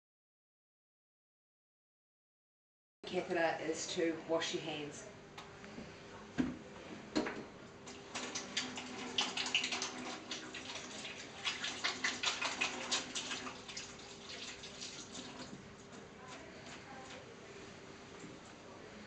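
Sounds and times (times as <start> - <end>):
water running from tap: 7.9 - 15.9.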